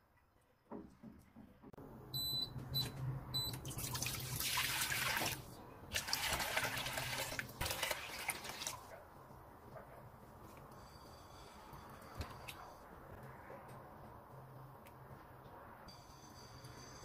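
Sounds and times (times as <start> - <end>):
water pouring into metal pot: 3.8 - 8.8.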